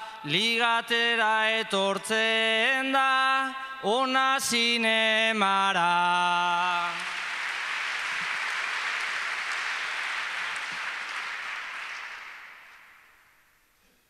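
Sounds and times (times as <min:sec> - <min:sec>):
audience applauding: 0:06.9 - 0:13.4.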